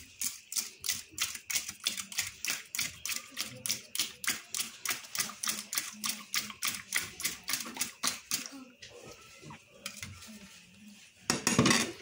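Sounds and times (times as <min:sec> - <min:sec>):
whisk clicking against ceramic bowl: 0:00.2 - 0:08.5.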